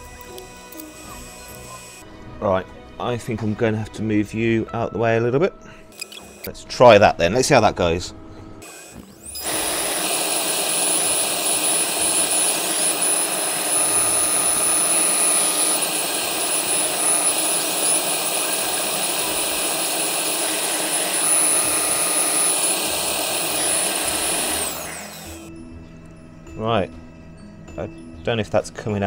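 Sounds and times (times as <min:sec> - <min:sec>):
router spindle whine: 0:00.0 - 0:02.0, 0:05.9 - 0:06.5, 0:08.6 - 0:25.5
wood cutting hiss: 0:08.6 - 0:25.5.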